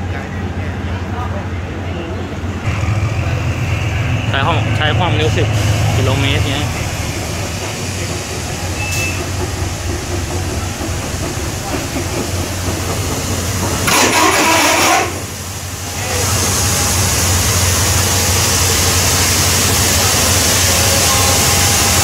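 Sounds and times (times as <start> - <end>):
diesel locomotive engine hum: 0.0 - 22.0
loud hissing burst: 2.7 - 9.4, 11.4 - 22.0.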